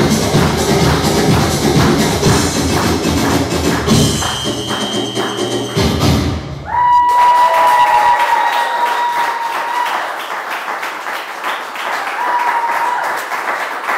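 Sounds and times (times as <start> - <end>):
audience applauding: 0.0 - 13.9
high-pitched call from crowd: 4.1 - 9.9.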